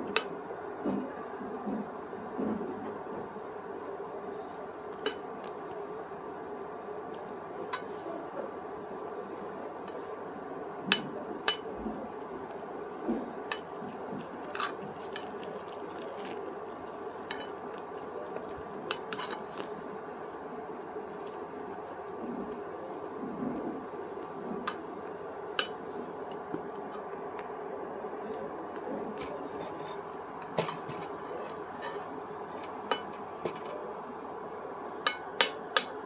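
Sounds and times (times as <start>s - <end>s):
steady hum: 0.0s - 36.0s
spoon scraping frying pan: 29.6s - 33.2s.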